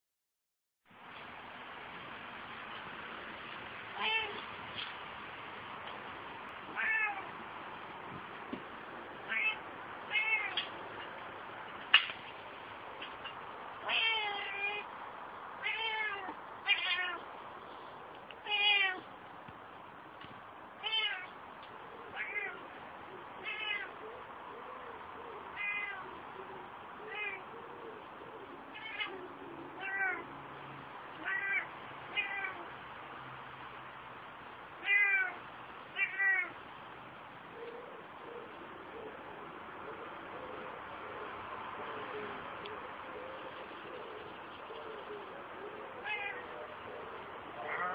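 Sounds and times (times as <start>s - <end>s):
cat meowing: 4.0s - 4.4s, 6.7s - 7.4s, 9.3s - 10.7s, 13.8s - 14.9s, 15.6s - 17.2s, 18.4s - 19.1s, 20.8s - 21.3s, 22.1s - 22.7s, 23.4s - 24.0s, 25.6s - 26.1s, 27.1s - 27.5s, 28.7s - 29.2s, 29.8s - 30.3s, 31.2s - 32.7s, 34.8s - 35.4s, 36.0s - 36.6s, 46.0s - 46.6s, 47.6s - 47.9s.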